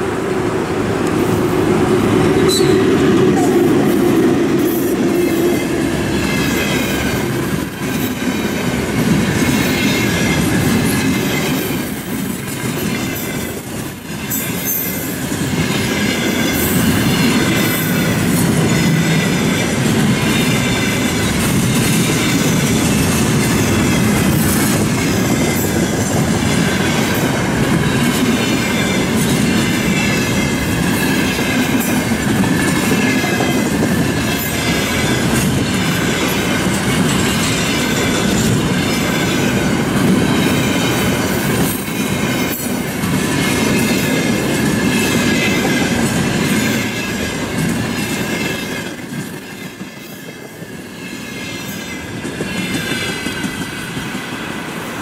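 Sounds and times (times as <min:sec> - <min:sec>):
freight train wheels on rails: 0:00.0 - 0:55.0
high ringing tones: 0:02.3 - 0:03.0.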